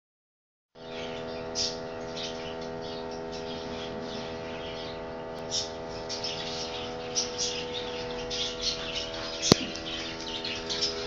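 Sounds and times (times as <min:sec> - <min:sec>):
finches chirping: 0:00.8 - 0:11.0.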